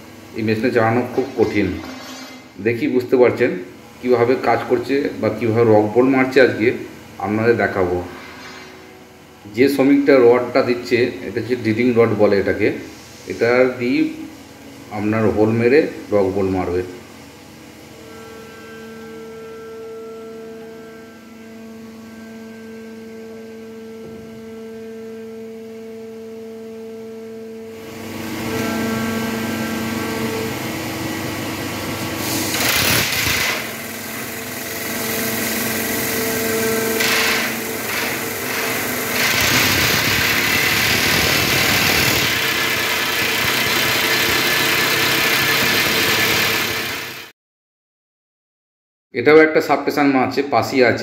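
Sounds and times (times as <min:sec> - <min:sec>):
drilling machine humming: 0:27.7 - 0:47.3
drill boring into rock: 0:32.3 - 0:47.3.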